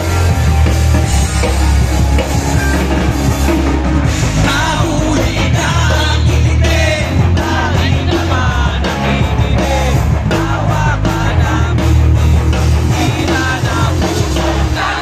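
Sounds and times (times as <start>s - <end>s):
bass: 0.0s - 15.0s
distorted electric guitars: 0.0s - 15.0s
drums: 0.0s - 15.0s
lead singer singing: 4.2s - 15.0s.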